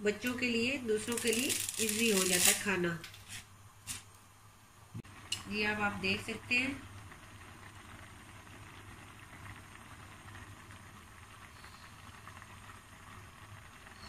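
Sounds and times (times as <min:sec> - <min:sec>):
water boiling in a pan: 0:00.0 - 0:04.1, 0:05.0 - 0:14.0
gas hob hiss: 0:00.1 - 0:04.2.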